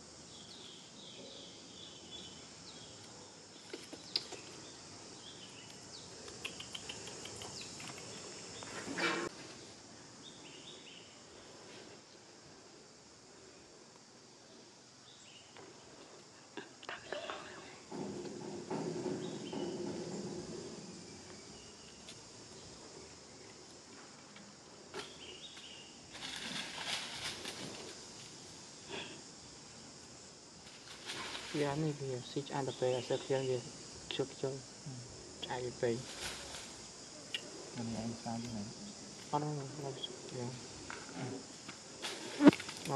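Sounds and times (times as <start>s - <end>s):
insect chorus: 0.0s - 42.9s
rustling: 25.0s - 28.5s, 30.6s - 32.0s, 36.0s - 37.8s
high insect buzzing: 25.0s - 42.9s.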